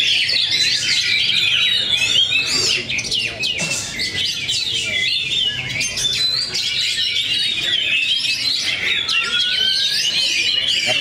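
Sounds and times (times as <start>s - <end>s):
many birds singing: 0.0s - 11.0s.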